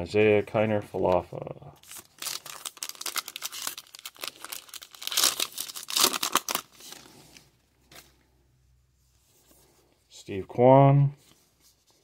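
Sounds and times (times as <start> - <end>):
plastic wrapper tearing: 1.8 - 7.0.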